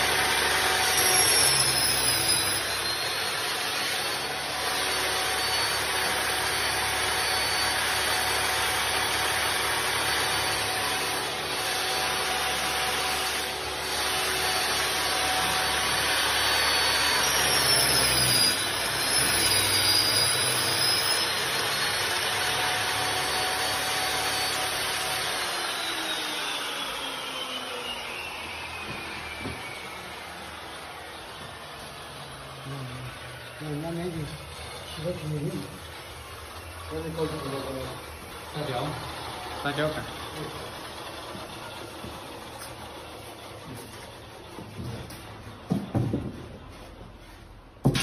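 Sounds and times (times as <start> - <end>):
table saw cutting panels: 0.0 - 48.0.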